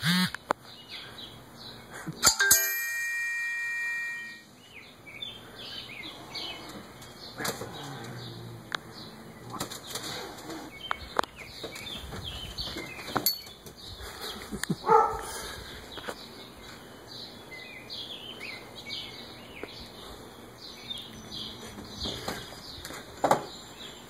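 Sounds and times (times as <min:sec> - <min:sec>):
small birds chirping: 0:00.0 - 0:02.2, 0:04.3 - 0:24.0
bell-like ring: 0:02.2 - 0:04.5.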